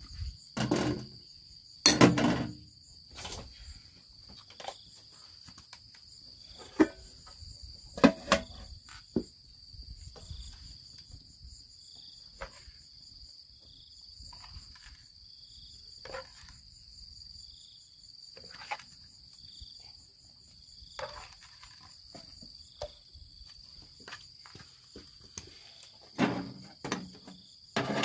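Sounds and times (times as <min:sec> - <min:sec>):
insects trilling: 0:00.0 - 0:28.0.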